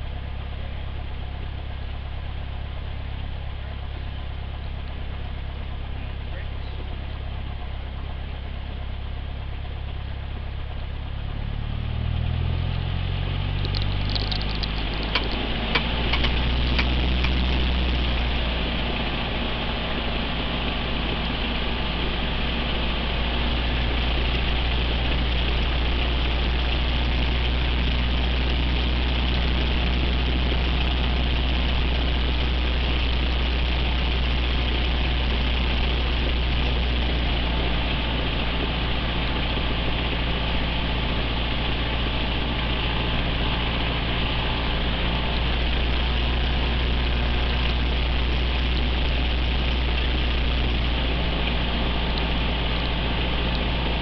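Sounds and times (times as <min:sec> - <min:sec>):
aircraft engine and propeller: 0:13.0 - 0:54.0.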